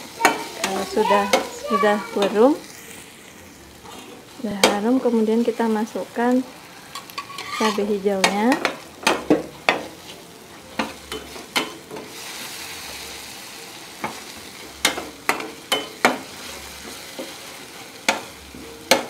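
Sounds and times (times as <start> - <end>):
spice paste sizzling in oil: 0.0 - 19.0
metal spatula scraping frying pan: 6.8 - 9.9.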